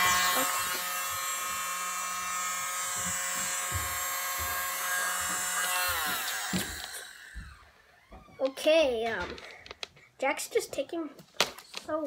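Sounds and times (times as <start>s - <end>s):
toy blower motor whining: 0.0s - 8.7s.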